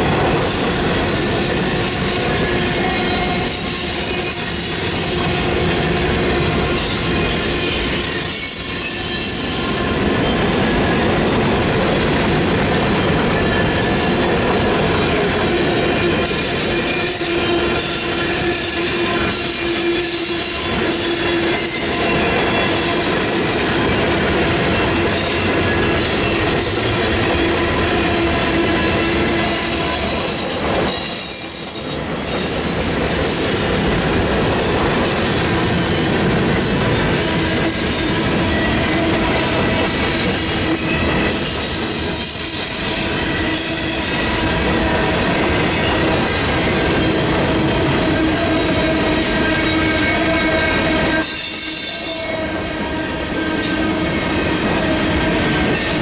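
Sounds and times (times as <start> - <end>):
freight train wheels rolling on rail: 0.0 - 56.0
high-pitched wheel squeals: 6.5 - 10.4, 48.2 - 52.7.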